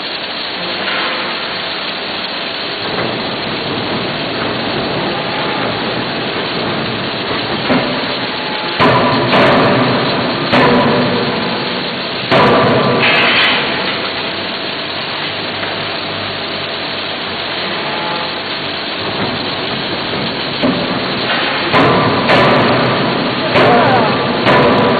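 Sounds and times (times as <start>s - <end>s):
steady machine noise: 0.0s - 24.9s
forging hammer heavy blows: 4.4s - 13.7s, 20.6s - 24.9s.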